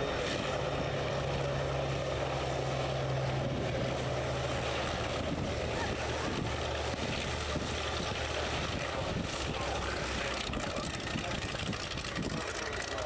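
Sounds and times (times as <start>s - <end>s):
radial piston engine droning: 0.0s - 13.0s.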